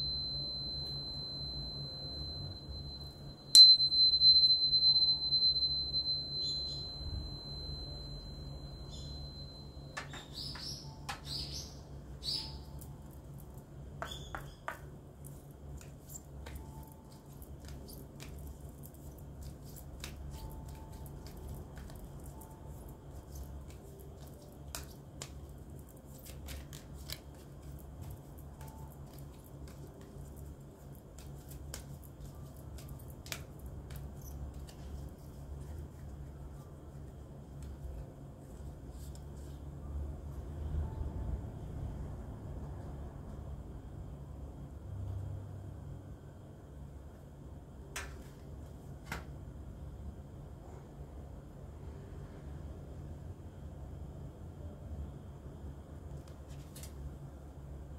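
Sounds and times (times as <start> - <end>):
steady low hum: 0.0 - 57.9
bird chirps: 10.0 - 12.8
cards being shuffled: 15.2 - 36.6, 56.2 - 57.0.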